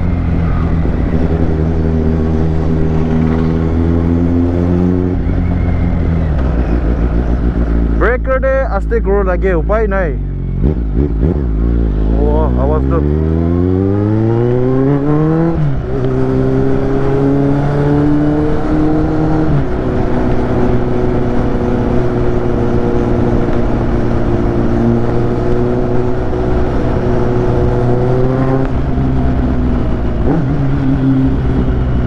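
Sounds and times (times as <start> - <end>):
motorcycle engine accelerating: 0.0 - 32.0.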